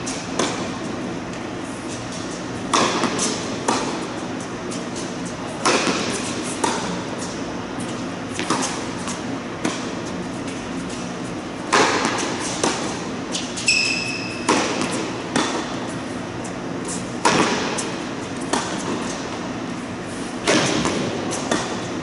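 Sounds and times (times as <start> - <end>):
tennis ball struck by racket: 0.3 - 0.7, 2.7 - 4.0, 5.6 - 7.0, 8.3 - 8.8, 9.6 - 10.0, 11.7 - 13.0, 14.4 - 15.7, 17.2 - 19.2, 20.4 - 21.8
tennis ball bouncing on hard court: 0.3 - 0.8, 2.7 - 4.1, 5.6 - 7.3, 8.3 - 10.0, 11.6 - 16.0, 17.2 - 19.4, 20.4 - 21.9
short high squeak: 13.6 - 14.5.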